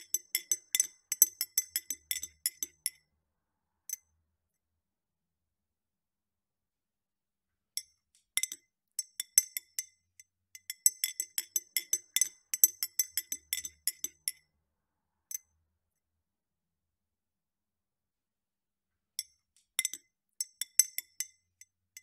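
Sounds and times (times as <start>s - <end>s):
teaspoon clinking in a glass: 0.0s - 3.0s, 10.6s - 14.4s.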